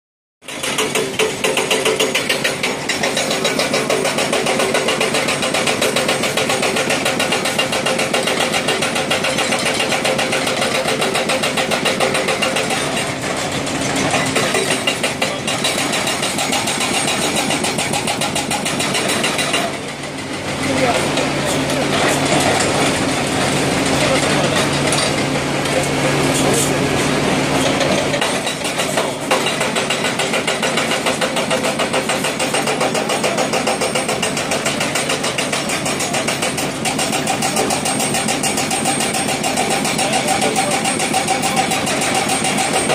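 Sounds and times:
hydraulic breaker pounding rock: 0.4s - 42.9s
diesel engines running: 0.8s - 42.9s.

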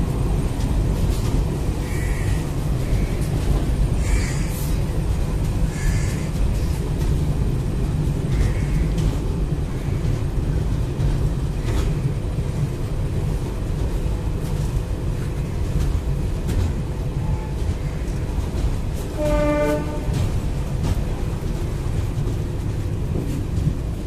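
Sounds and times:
train rumbling: 0.0s - 24.0s
wheels clicking over rail joints: 0.0s - 24.0s
train horn blast: 19.1s - 20.4s.

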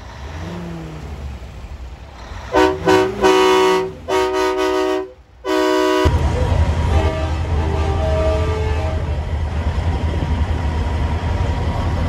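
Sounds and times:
diesel engine revving: 0.0s - 12.0s
truck air horn blasts: 2.5s - 6.2s, 6.9s - 9.1s.

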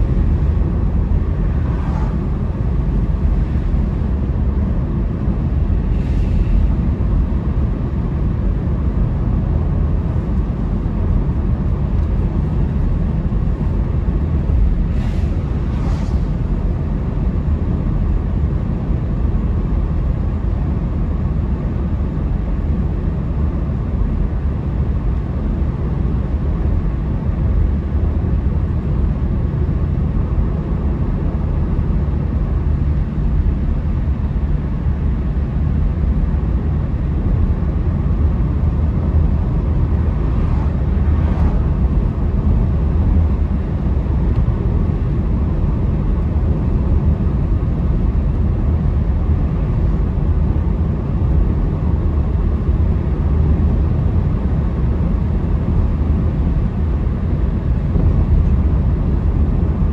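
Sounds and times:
car road and engine rumble: 0.0s - 59.9s
faint swish: 1.5s - 2.4s, 14.9s - 16.6s.

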